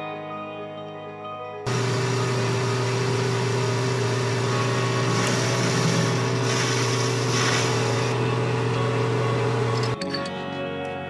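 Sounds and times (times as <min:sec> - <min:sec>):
cutting tool hiss: 0:01.7 - 0:08.3
lathe motor hum: 0:01.7 - 0:10.0.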